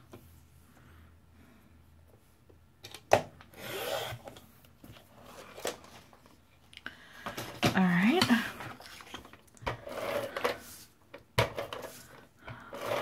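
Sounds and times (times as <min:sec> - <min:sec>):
paper trimmer blade rasping through paper: 0:12.6 - 0:13.0.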